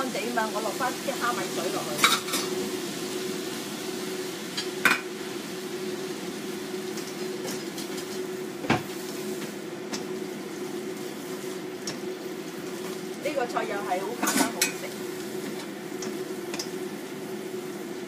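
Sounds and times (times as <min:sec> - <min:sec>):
food stir-frying in a pan: 0:00.0 - 0:18.0
steady hum: 0:00.0 - 0:18.0
chopsticks clicking against pan: 0:16.0 - 0:16.8.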